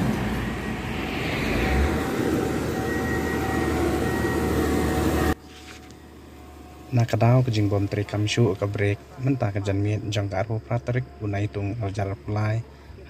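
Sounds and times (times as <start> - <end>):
heavy trucks passing: 0.0 - 5.4.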